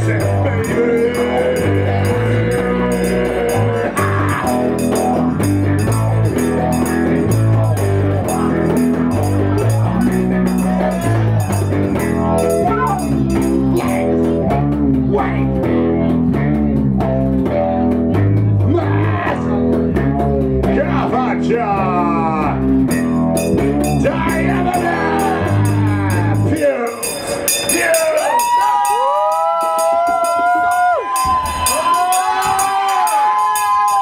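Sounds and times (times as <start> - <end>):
electric guitar: 0.0 - 27.4
bass guitar: 0.0 - 34.0
drums: 0.0 - 34.0.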